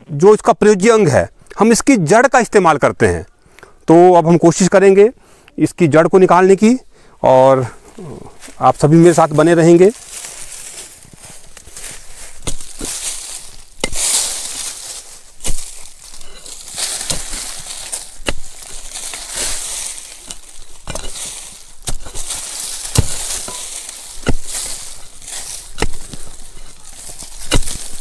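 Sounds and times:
dry earth crunching: 7.6 - 28.0
pickaxe striking stony soil: 11.4 - 28.0.

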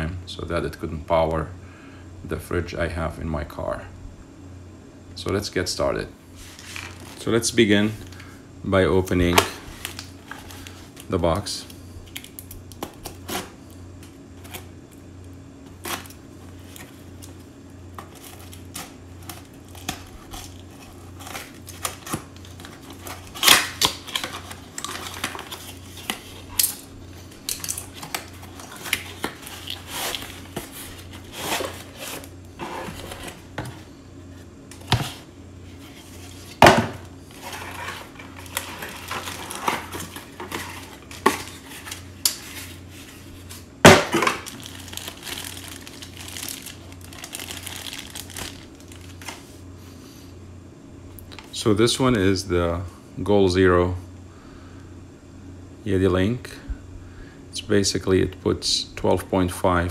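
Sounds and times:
low steady hum: 0.0 - 59.9
cardboard scrapes and rustles: 6.4 - 7.2, 28.0 - 33.9, 37.3 - 43.7.

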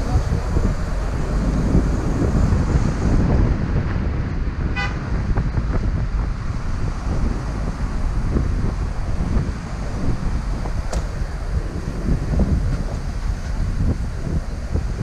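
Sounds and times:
car road rumble: 0.0 - 15.0
wind buffeting microphone: 0.0 - 15.0
short car horn toot: 4.8 - 5.0.

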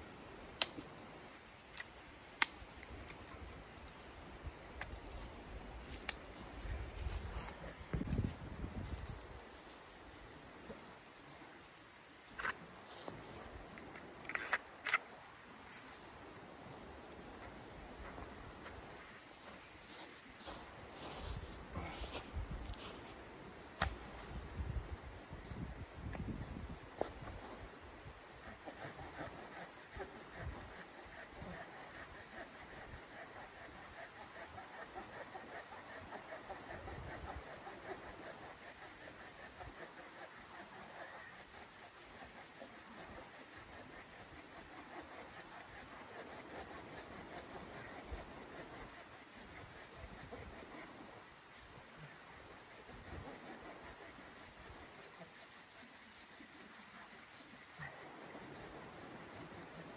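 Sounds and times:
knife scraping wood: 28.2 - 51.0, 52.6 - 59.9.

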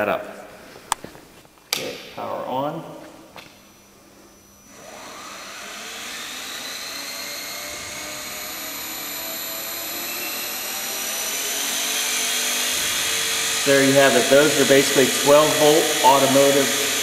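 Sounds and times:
small motor whine rising: 3.7 - 17.0.

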